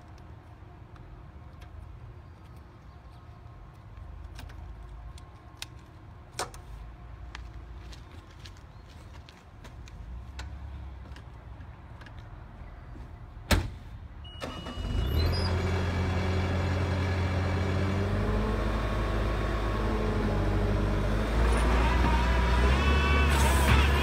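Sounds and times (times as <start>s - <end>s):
skid steer engine starting: 14.3s - 24.0s.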